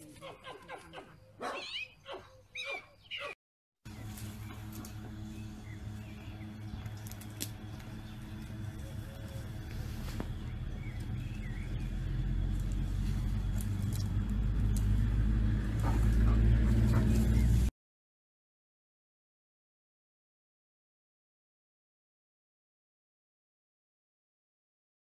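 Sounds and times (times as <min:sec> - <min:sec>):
low engine-like hum: 0:03.9 - 0:17.7
dog digging in loose dirt: 0:06.7 - 0:17.7.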